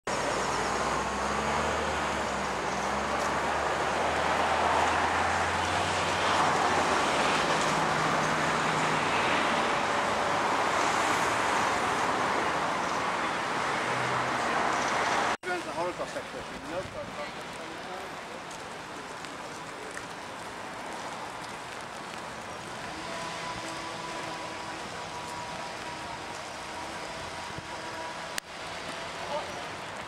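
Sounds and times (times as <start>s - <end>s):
city road traffic: 0.0s - 30.0s
vehicle engine passing: 0.2s - 12.6s, 22.6s - 30.0s.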